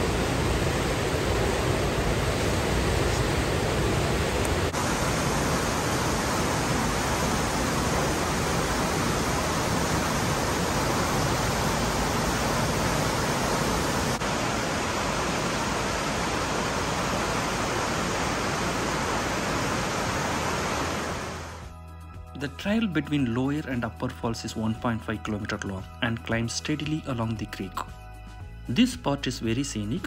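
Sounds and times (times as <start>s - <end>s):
creek rushing over rocks: 0.0s - 21.6s.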